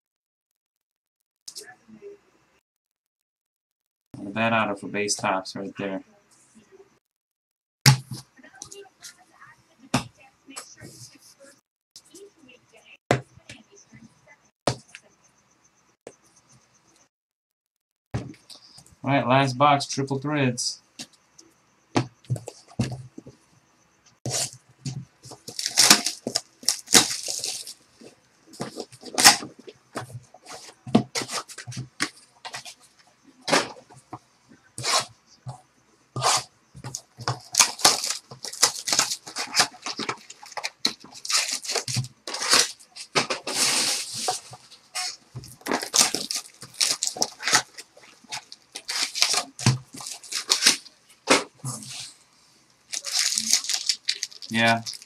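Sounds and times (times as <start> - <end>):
plastic and foil wrapping crinkling: 24.3 - 32.8, 36.2 - 52.2, 52.8 - 55.0
cardboard scraping: 24.3 - 32.9, 34.8 - 35.1, 36.2 - 52.2.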